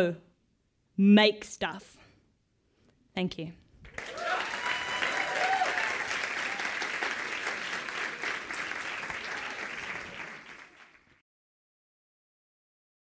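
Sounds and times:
audience applauding: 0:03.8 - 0:11.2.

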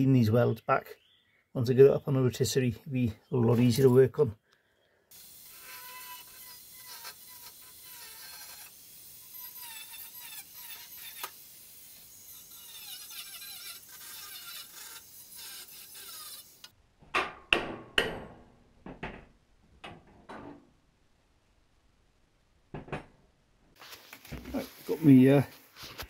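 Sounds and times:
angle grinder cutting steel: 0:05.2 - 0:16.8
sharp knocks: 0:17.0 - 0:20.5.

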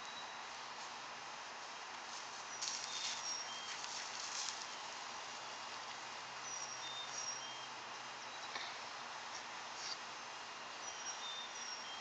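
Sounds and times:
background hiss: 0:00.0 - 0:12.0
dog paws digging in mulch: 0:02.0 - 0:05.0
bird chirping: 0:02.5 - 0:03.9, 0:06.4 - 0:08.7, 0:10.8 - 0:12.0.

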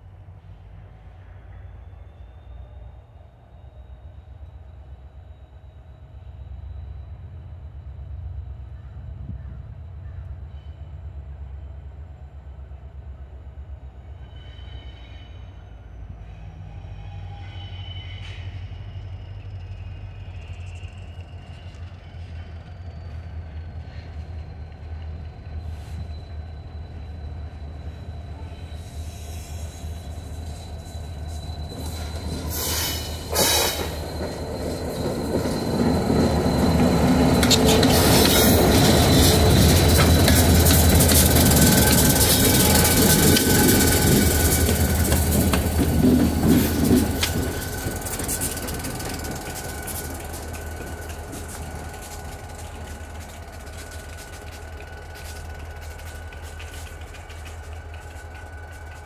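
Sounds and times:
diesel locomotive engine rumble: 0:00.0 - 0:59.0
high wheel squeal: 0:14.1 - 0:56.8.

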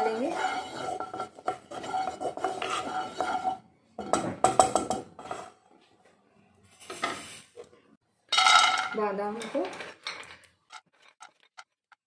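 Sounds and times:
wooden spatula scraping frying pan: 0:00.0 - 0:05.7.

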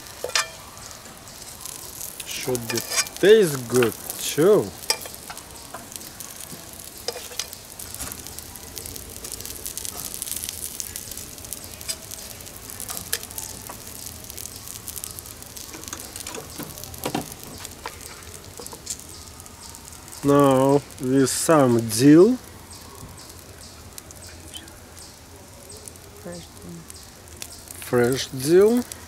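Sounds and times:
meat sizzling on a grill: 0:00.0 - 0:29.0
metal tongs clicking on grate: 0:00.2 - 0:00.6, 0:02.2 - 0:03.2, 0:04.8 - 0:05.9, 0:07.0 - 0:07.6.

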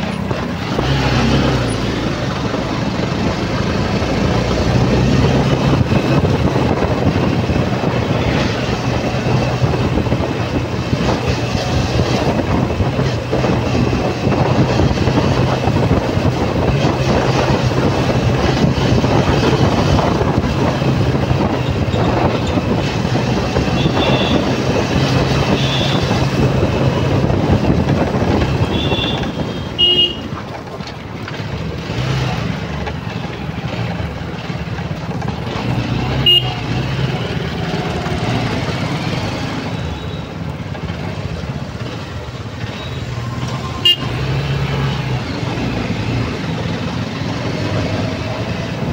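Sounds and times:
motorbike engine hum: 0:00.0 - 0:48.9
road noise: 0:00.0 - 0:48.9
vehicle horn toots: 0:23.7 - 0:24.6, 0:25.4 - 0:26.2, 0:28.6 - 0:30.3, 0:36.1 - 0:36.7, 0:43.8 - 0:44.3.

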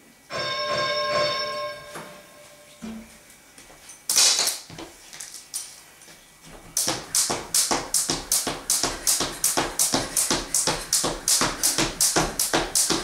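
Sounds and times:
timer signal tone: 0:00.3 - 0:02.8
jump rope slapping floor: 0:04.1 - 0:05.7, 0:06.5 - 0:13.0.

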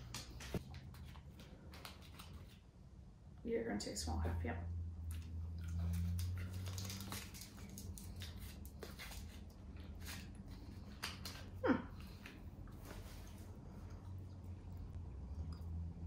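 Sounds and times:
low steady hum: 0:00.0 - 0:16.0
gum wrappers crinkling: 0:05.2 - 0:12.4.

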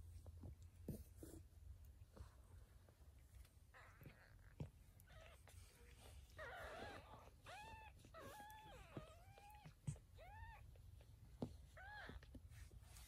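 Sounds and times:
kittens mewing: 0:03.7 - 0:10.9.

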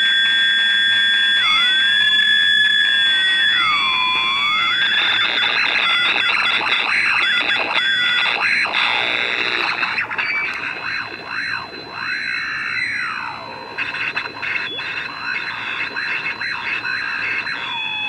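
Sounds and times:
radio interference buzz: 0:00.0 - 0:18.0
steady high whine: 0:00.0 - 0:18.0
sweeping whistling tones: 0:09.8 - 0:18.0.

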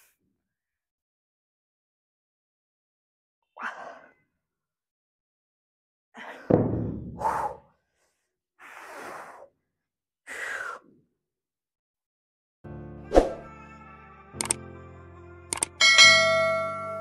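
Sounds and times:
sudden thud: 0:06.5 - 0:07.5.

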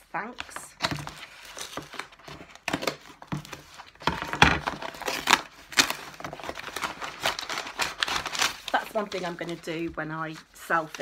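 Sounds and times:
cardboard box tearing: 0:00.8 - 0:08.8
packing rustling: 0:00.8 - 0:09.8.

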